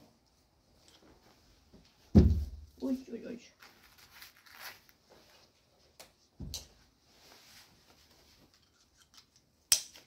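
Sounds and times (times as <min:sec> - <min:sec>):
dull thump: 0:02.1 - 0:02.7.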